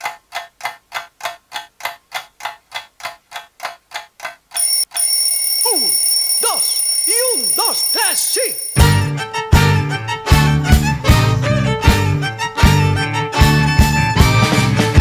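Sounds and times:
clock ticking: 0.0s - 9.1s
alarm ringing: 4.6s - 9.1s.

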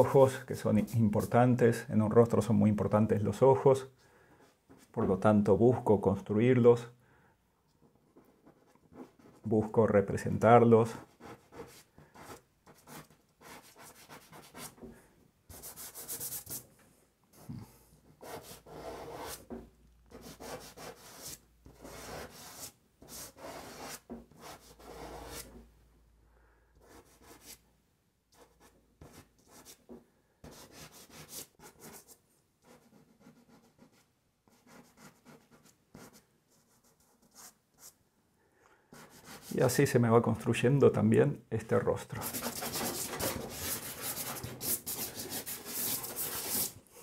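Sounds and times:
pastels scratching on paper: 42.2s - 46.8s.

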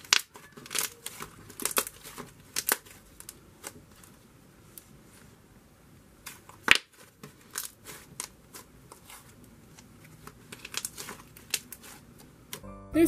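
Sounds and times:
slime crackles and clicks: 0.0s - 4.1s, 9.8s - 12.6s.

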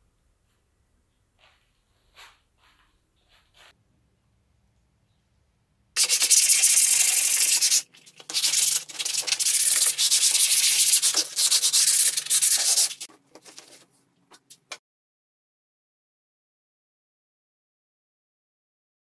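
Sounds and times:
sandpaper rubbing on board: 6.0s - 13.8s.

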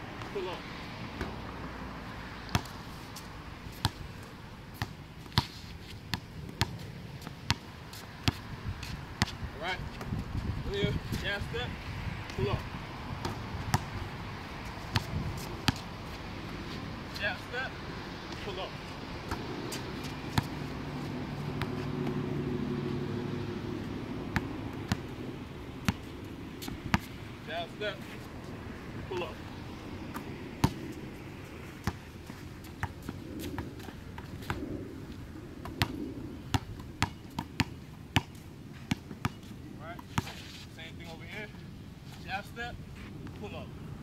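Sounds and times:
basketball bouncing on hard court: 13.2s - 13.9s, 14.9s - 15.8s, 20.3s - 20.6s, 24.4s - 25.0s, 30.1s - 30.8s, 36.5s - 39.4s
low engine hum: 17.7s - 27.5s.

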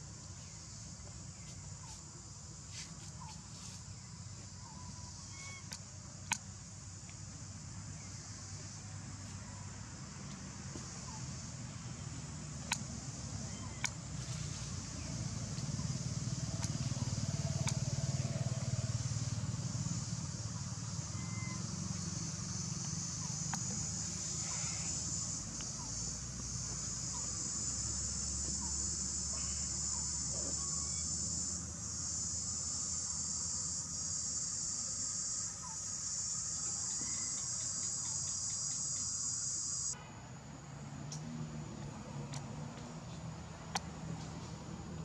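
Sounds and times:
high-pitched insect chorus: 0.0s - 42.3s.

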